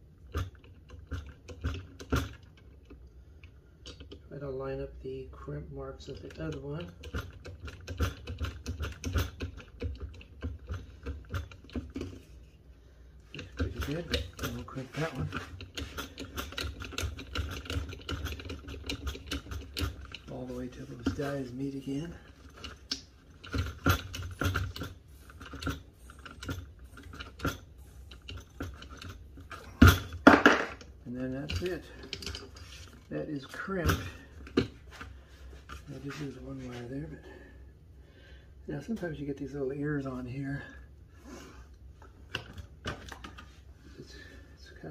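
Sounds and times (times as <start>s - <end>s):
hydraulic crimper clicking and knocking: 0.2s - 4.2s, 6.1s - 12.3s, 13.3s - 20.3s, 22.4s - 32.6s.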